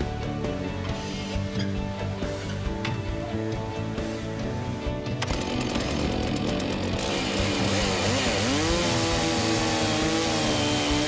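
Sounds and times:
chainsaw ripping a log: 5.2 - 11.0.

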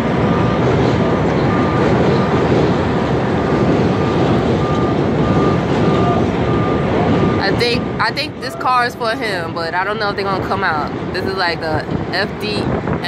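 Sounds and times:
city traffic roar: 0.0 - 13.0
high electronic beeps: 3.9 - 8.7.

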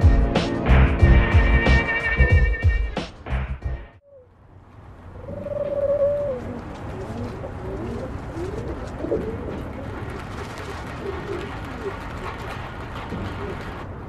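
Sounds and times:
pigeons cooing: 4.0 - 4.3, 5.1 - 13.8.

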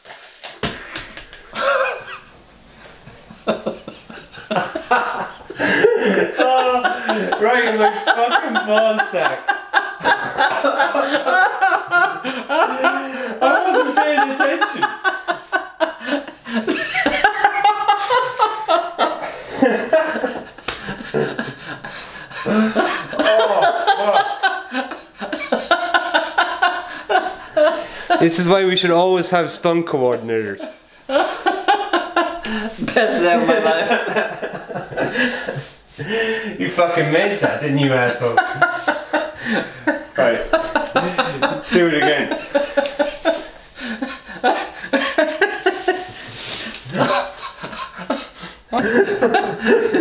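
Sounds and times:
stifled laughter: 1.5 - 2.4, 3.1 - 28.2, 38.3 - 50.0.

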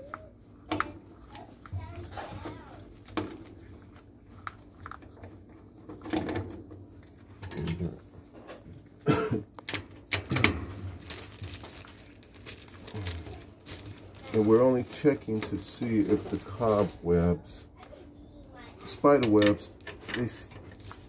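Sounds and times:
clicks taps and rustles of hands: 0.0 - 10.6, 19.0 - 21.0.

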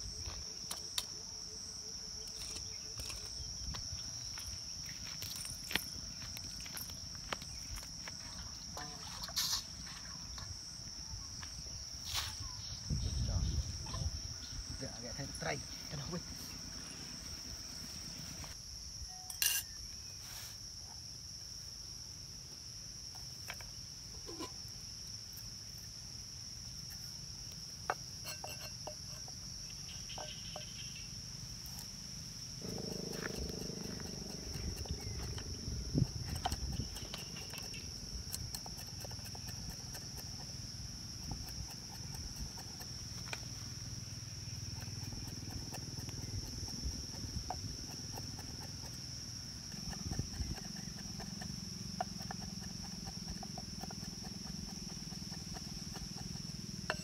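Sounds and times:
high-pitched insect chirring: 26.7 - 57.0.

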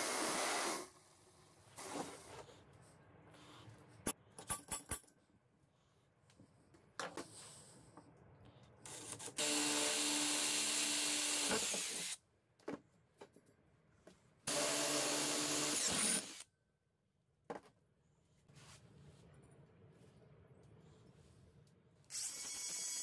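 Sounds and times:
cordless drill boring into steel: 14.5 - 16.4.

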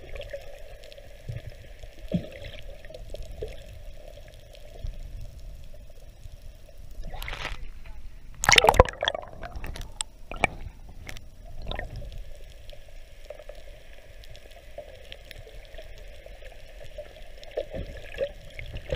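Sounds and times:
muffled water wash: 0.0 - 18.9
underwater splashing and bubbling: 0.0 - 18.9
clicks underwater: 8.3 - 12.1.

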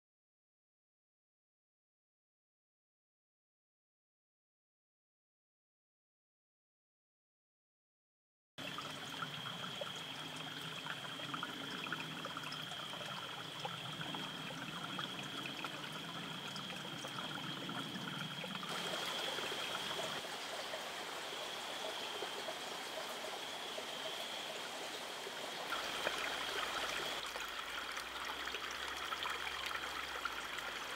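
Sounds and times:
stream trickling over rocks: 8.6 - 30.9.

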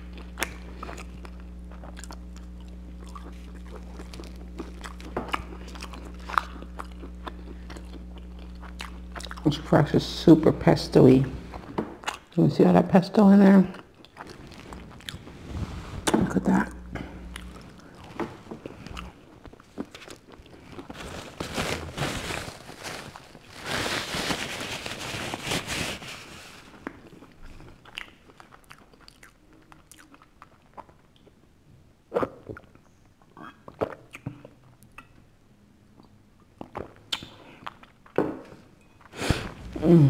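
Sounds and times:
crunching pizza crust: 0.0 - 9.6, 16.0 - 28.6
mouth sounds: 39.3 - 40.0.

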